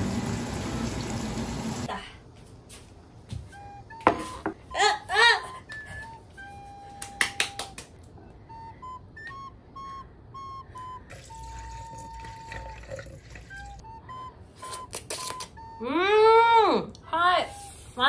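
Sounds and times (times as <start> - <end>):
tap water running: 0.0 - 1.9, 11.1 - 13.8
whistle-like music tune: 3.5 - 4.5, 5.6 - 7.8, 8.4 - 16.2.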